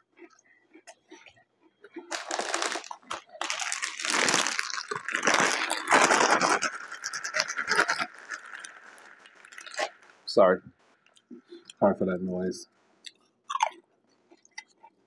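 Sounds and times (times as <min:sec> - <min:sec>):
plastic bag crinkling: 0:02.0 - 0:10.2.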